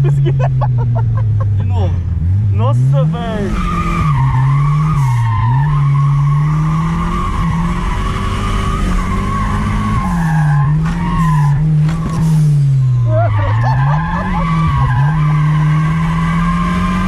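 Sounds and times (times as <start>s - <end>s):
car engine revving: 0.0s - 17.0s
tyres squealing: 13.0s - 16.5s.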